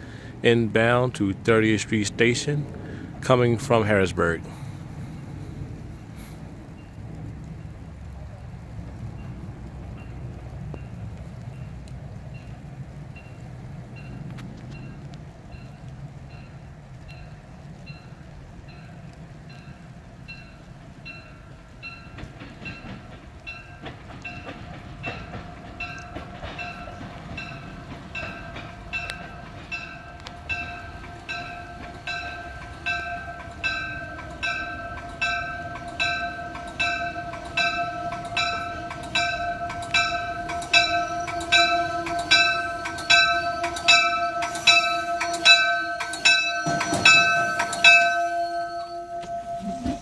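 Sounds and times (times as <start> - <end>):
train rumble: 0.0 - 50.0
train warning bell ringing: 12.3 - 50.0
steady tone: 27.4 - 50.0.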